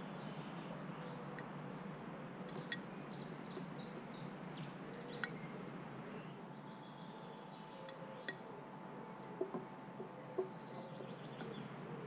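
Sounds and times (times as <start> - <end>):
low outdoor hum: 0.0 - 12.0
songbird twittering: 2.4 - 8.5, 9.3 - 12.0.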